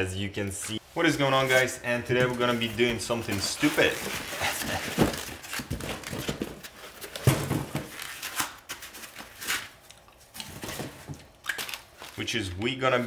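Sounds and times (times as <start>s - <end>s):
cardboard and foam rustling: 1.0s - 9.8s, 10.4s - 11.3s.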